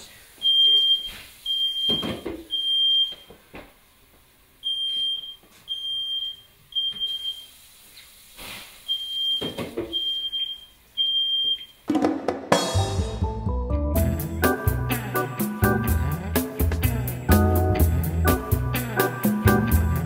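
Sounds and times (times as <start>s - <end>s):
smoke alarm beeping: 0.4s - 3.3s, 4.6s - 7.6s, 8.8s - 11.8s.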